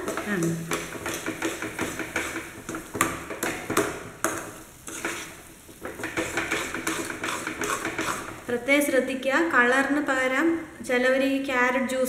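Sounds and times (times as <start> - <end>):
metal spoon scraping a metal pan: 0.0 - 8.5
soft sizzle of cooking: 0.0 - 11.9.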